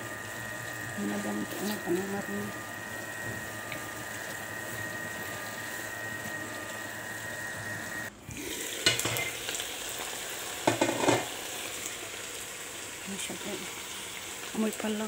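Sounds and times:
meat sizzling in a frying pan: 8.4 - 15.0
utensil knocking on cookware: 10.6 - 11.3.

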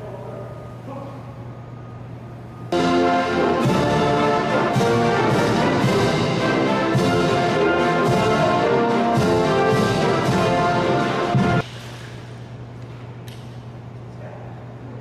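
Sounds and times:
brass band playing a march: 2.8 - 11.6.

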